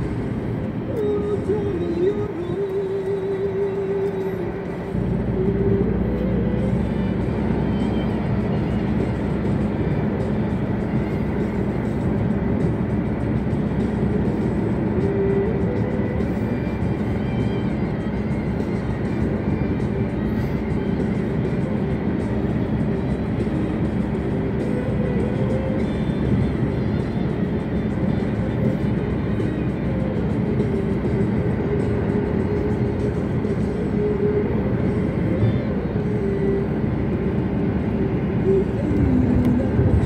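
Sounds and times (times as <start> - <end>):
car road and engine noise: 0.0 - 40.0
music playing: 0.0 - 40.0.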